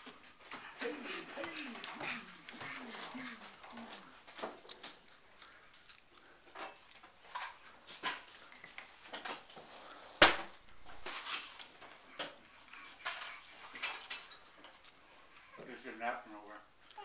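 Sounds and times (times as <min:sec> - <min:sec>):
baby jumper knocking and creaking: 0:11.7 - 0:14.8.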